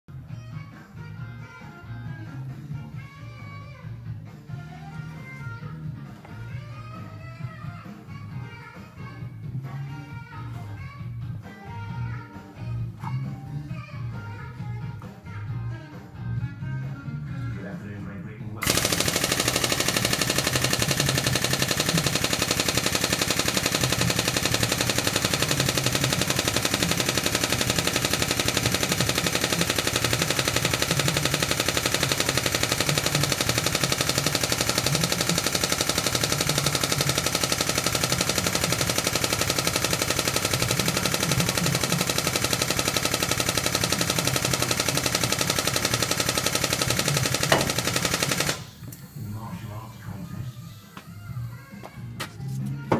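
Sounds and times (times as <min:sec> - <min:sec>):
hydraulic pump rattling: 0:18.6 - 0:49.2.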